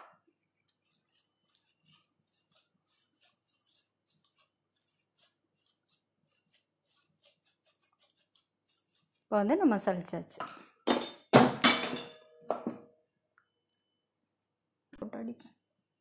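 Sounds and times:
sugar rustling through mesh sieve: 0:00.8 - 0:10.1.

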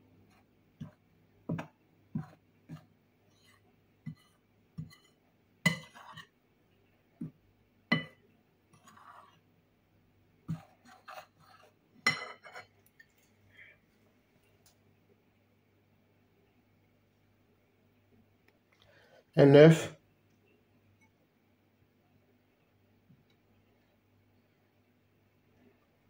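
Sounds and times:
spoon scraping: 0:02.2 - 0:06.3, 0:07.9 - 0:09.4, 0:10.5 - 0:13.4
metal spoon clinking on glass bowl: 0:07.9 - 0:08.2, 0:12.0 - 0:13.1.

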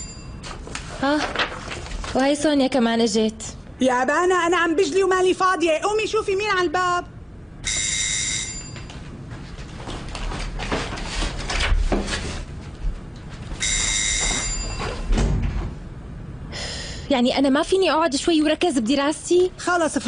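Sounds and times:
electric doorbell buzzing: 0:07.6 - 0:09.0, 0:13.6 - 0:15.1.

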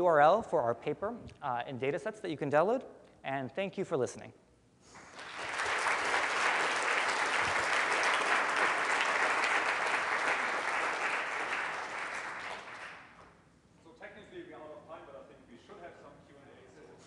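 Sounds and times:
audience applauding: 0:05.0 - 0:13.2.

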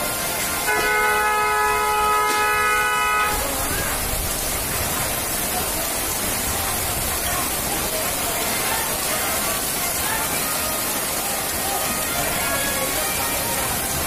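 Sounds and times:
heavy rain pouring: 0:00.0 - 0:14.0
vehicle horn blast: 0:00.6 - 0:03.5.

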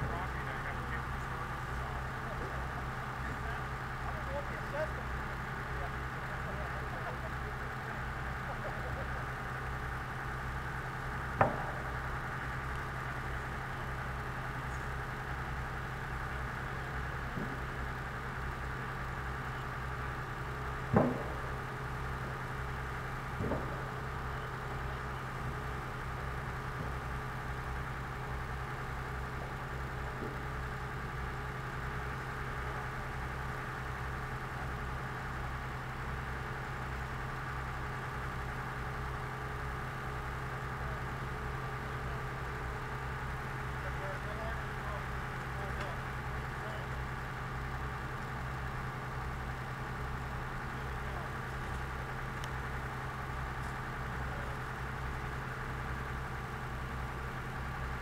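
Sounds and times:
heavy machinery engine idling: 0:00.0 - 0:58.0
loud sharp knock: 0:20.9 - 0:21.4.

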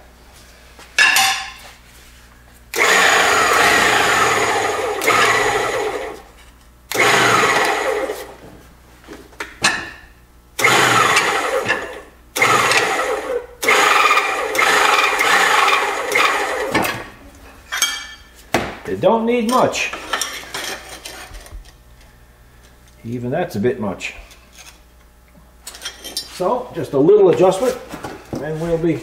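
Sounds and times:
hydraulic press pump running: 0:02.7 - 0:06.3, 0:06.9 - 0:08.4, 0:10.6 - 0:17.2.

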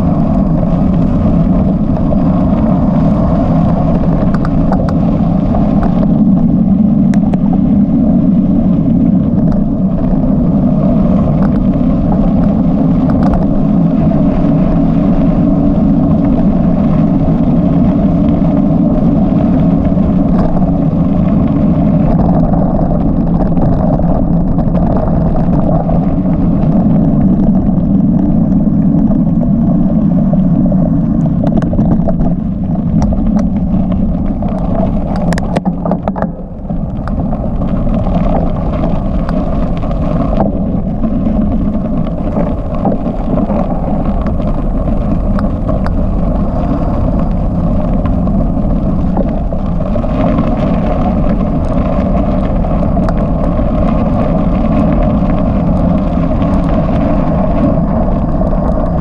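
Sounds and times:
vehicle driving on gravel road: 0:00.0 - 0:59.0
faint clicks: 0:04.2 - 0:05.0, 0:34.4 - 0:40.6.

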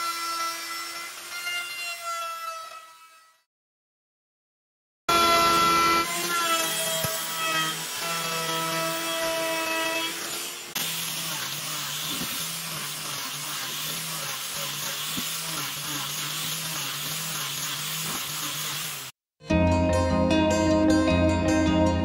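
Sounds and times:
router whining: 0:05.1 - 0:19.2
disc sander hissing and humming: 0:10.2 - 0:19.1.

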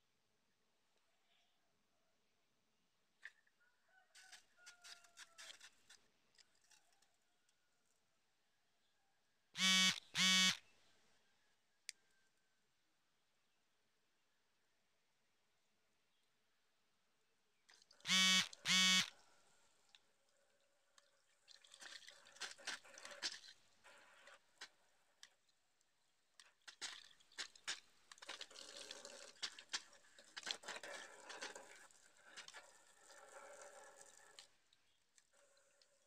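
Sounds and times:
short loud beeps: 0:09.6 - 0:10.6, 0:18.1 - 0:19.1.

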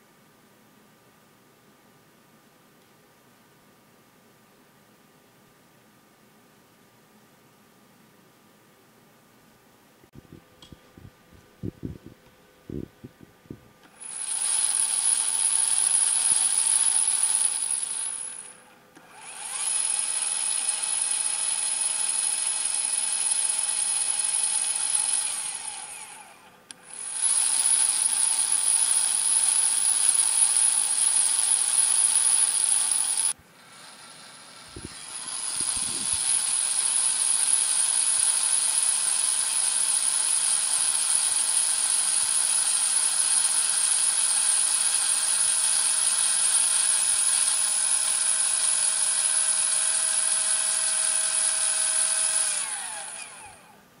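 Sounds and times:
telescope mount motor whining: 0:10.6 - 0:53.8.

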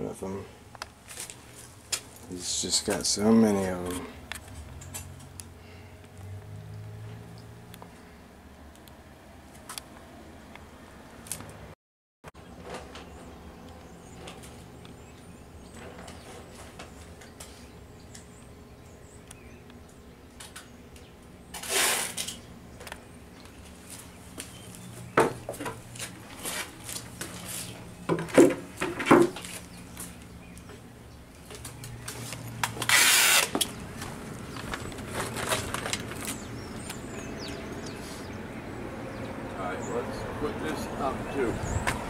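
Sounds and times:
sharp knocks and clatter: 0:25.2 - 0:25.8, 0:28.1 - 0:29.5.

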